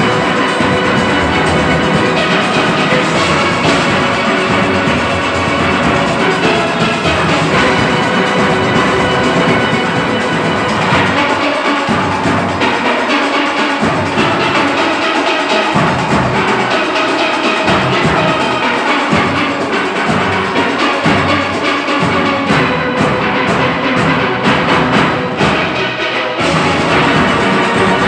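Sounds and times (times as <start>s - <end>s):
low bass pan notes: 0.0s - 12.8s
steel band playing: 0.0s - 28.0s.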